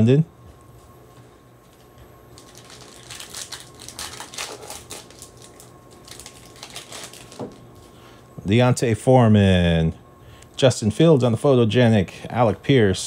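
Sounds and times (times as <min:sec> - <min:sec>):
plastic wrapper crinkling: 0:02.3 - 0:07.9.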